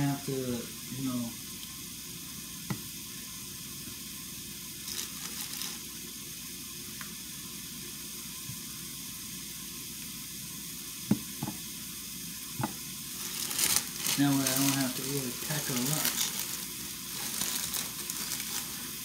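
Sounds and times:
patties sizzling in frying pan: 0:00.0 - 0:19.0
plastic bag crinkle: 0:04.8 - 0:05.9, 0:13.1 - 0:19.0.

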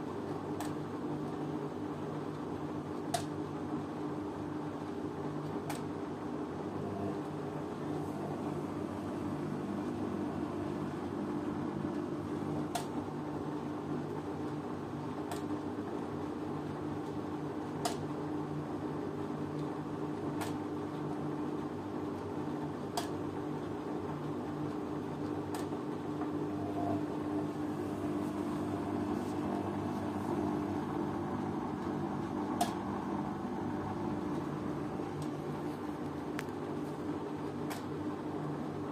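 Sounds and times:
washing machine humming: 0:00.0 - 0:38.9.

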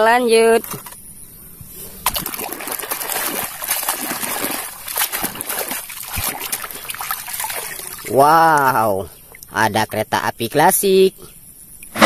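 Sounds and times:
water sloshing and splashing: 0:01.8 - 0:09.6.

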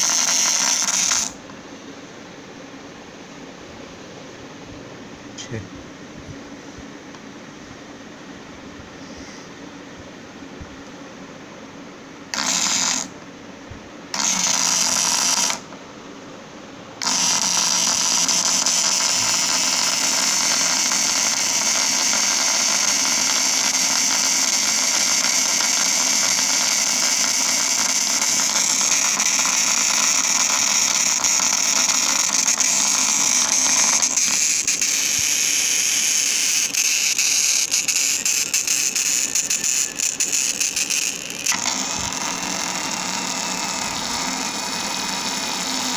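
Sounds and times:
electric motor whining: 0:00.0 - 0:01.4, 0:12.3 - 0:13.1, 0:14.1 - 0:15.8, 0:17.0 - 0:45.9.

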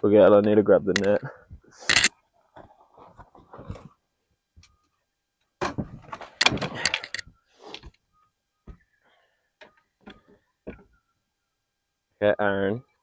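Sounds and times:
clicks and rattles: 0:01.8 - 0:02.7, 0:05.6 - 0:07.9.

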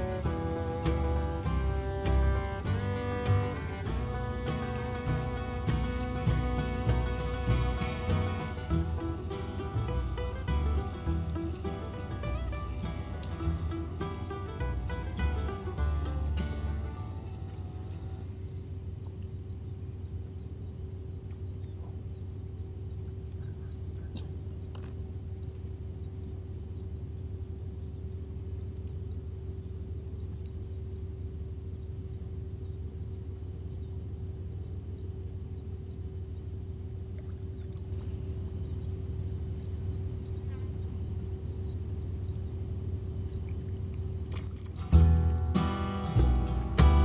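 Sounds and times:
low rumble: 0:00.0 - 0:47.0
steady hum: 0:00.0 - 0:47.0.

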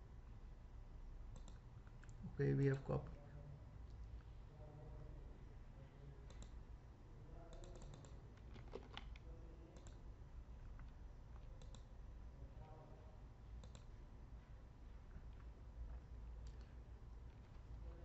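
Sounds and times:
mouse and keyboard clicks: 0:01.3 - 0:02.2, 0:06.3 - 0:06.6, 0:07.5 - 0:09.2, 0:09.8 - 0:10.0, 0:10.8 - 0:11.9, 0:13.6 - 0:13.9.

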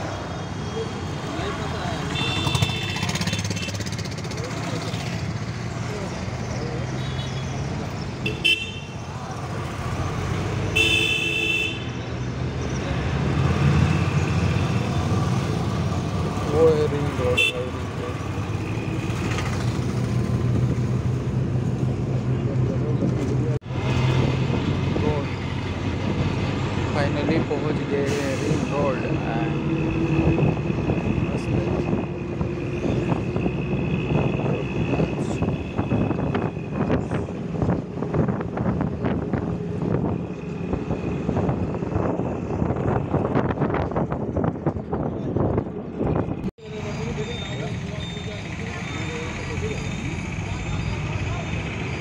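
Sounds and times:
bus engine and road rumble: 0:00.0 - 0:52.0
vehicle horn: 0:02.1 - 0:03.8, 0:08.2 - 0:09.0, 0:10.7 - 0:11.9, 0:17.3 - 0:17.8.

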